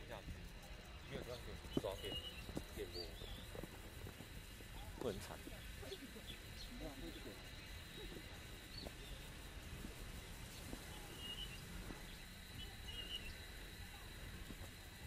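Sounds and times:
high-pitched insect drone: 0:00.0 - 0:15.0
bird chirps: 0:01.0 - 0:03.6, 0:10.2 - 0:14.2
footsteps on stone steps: 0:01.7 - 0:02.8.

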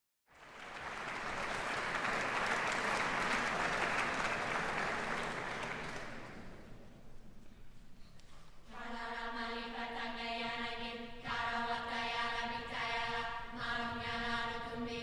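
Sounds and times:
audience applauding: 0:00.3 - 0:06.8.

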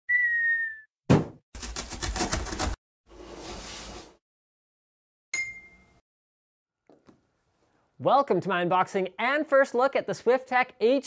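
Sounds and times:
sharp thump: 0:01.1 - 0:01.4
bright ringing ding: 0:05.4 - 0:06.0.

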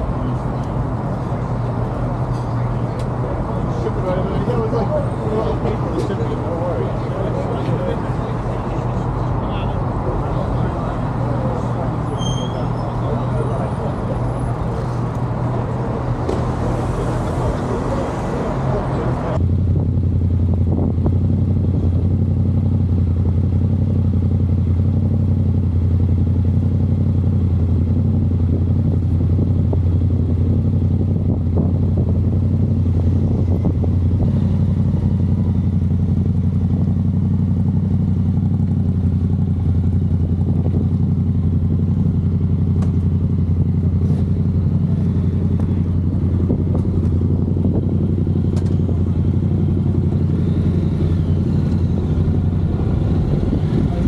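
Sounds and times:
motorcycle engine idling: 0:19.4 - 0:54.0.

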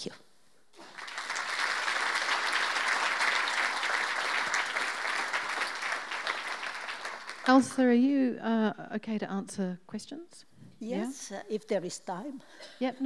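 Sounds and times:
audience applauding: 0:00.8 - 0:07.7.

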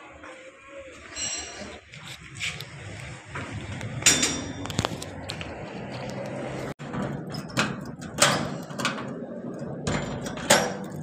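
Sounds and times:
metal gate clanking: 0:03.9 - 0:04.8, 0:06.8 - 0:11.0.

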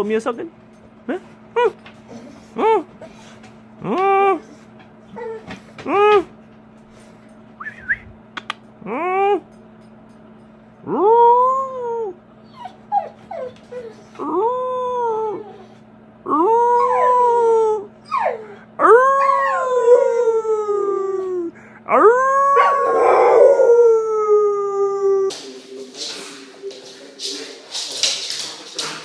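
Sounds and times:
dog howling: 0:10.8 - 0:25.4.

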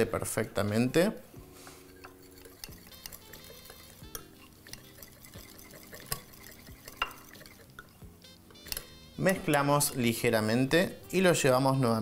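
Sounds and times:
whisk stirring thick mixture: 0:00.8 - 0:08.0, 0:09.7 - 0:10.4
whisk clinking against glass: 0:01.8 - 0:08.0, 0:09.5 - 0:10.3.

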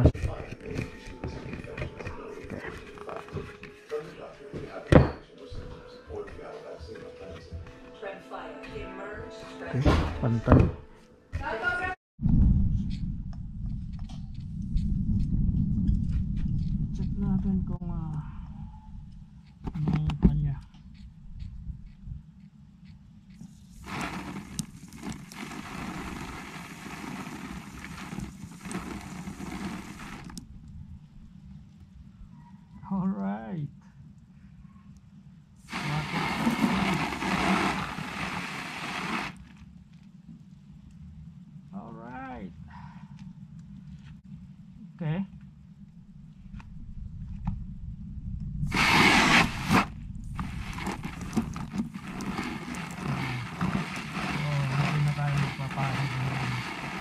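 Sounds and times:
hose water spraying on plastic: 0:23.4 - 0:30.4, 0:35.6 - 0:39.5, 0:48.7 - 0:57.0.

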